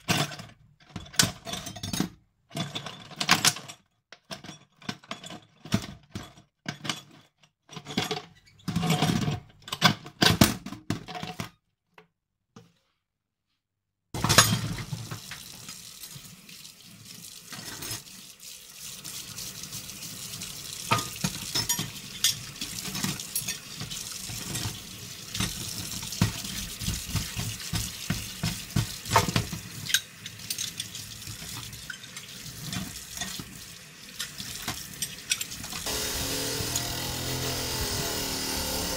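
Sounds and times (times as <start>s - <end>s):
metal bits scraping steel sink: 17.5s - 18.0s, 20.9s - 27.8s, 29.1s - 33.5s, 34.2s - 38.9s
tap running into sink: 20.8s - 31.8s
scrubbing metal bits: 34.2s - 38.9s.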